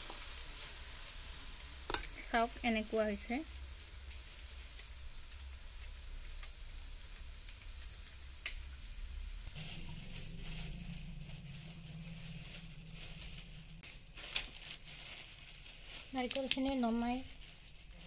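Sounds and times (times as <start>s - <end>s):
faint sizzle: 0.0s - 18.0s
steady low hum: 1.1s - 16.1s.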